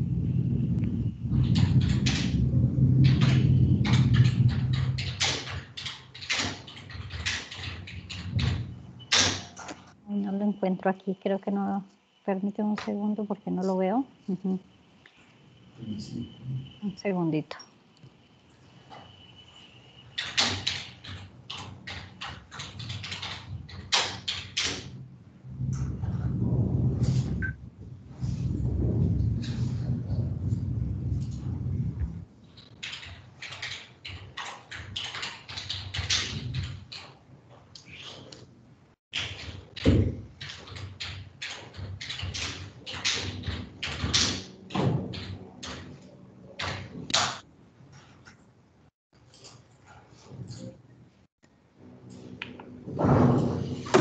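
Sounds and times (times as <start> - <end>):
rapid irregular knocks: 1.3 - 9.9, 20.2 - 25.0, 39.2 - 46.0
computer keyboard typing: 1.4 - 9.8, 20.2 - 24.9, 32.6 - 37.2, 39.2 - 46.0
low rumble: 25.4 - 32.3.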